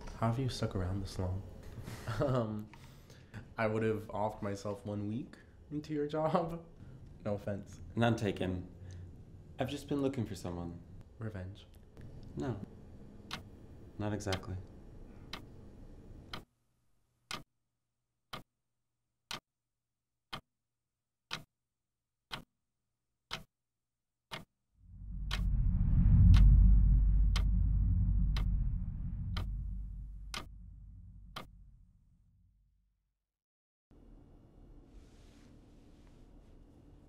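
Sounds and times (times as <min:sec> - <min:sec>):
clock ticking: 0:13.2 - 0:13.5, 0:15.3 - 0:15.5, 0:16.3 - 0:16.5, 0:17.3 - 0:17.5, 0:19.3 - 0:19.5, 0:20.3 - 0:20.5, 0:21.3 - 0:21.5, 0:22.3 - 0:22.5, 0:23.3 - 0:23.5, 0:24.3 - 0:24.5, 0:25.2 - 0:25.5, 0:27.3 - 0:27.5, 0:28.3 - 0:28.6, 0:29.2 - 0:30.6, 0:31.3 - 0:31.5
deep low rumble: 0:24.8 - 0:32.5.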